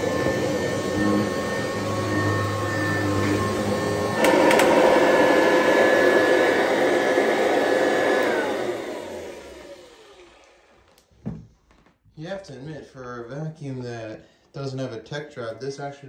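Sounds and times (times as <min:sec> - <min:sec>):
upright vacuum motor whine: 0:00.0 - 0:11.0
vacuum switch click: 0:04.2 - 0:05.1.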